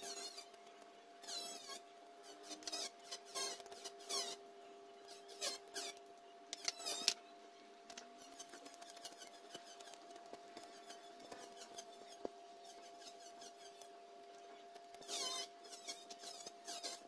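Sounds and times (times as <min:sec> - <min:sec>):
faint steady hum: 0:00.0 - 0:17.0
blade scraping bamboo strip: 0:06.6 - 0:07.2, 0:08.2 - 0:13.9, 0:14.8 - 0:17.0.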